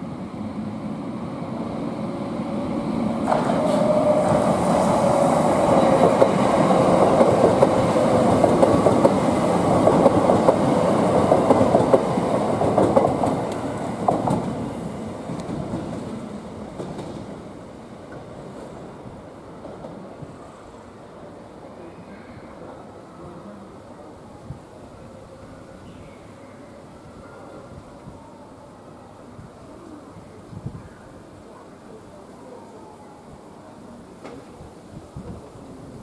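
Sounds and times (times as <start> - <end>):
train whine: 0.0 - 21.4.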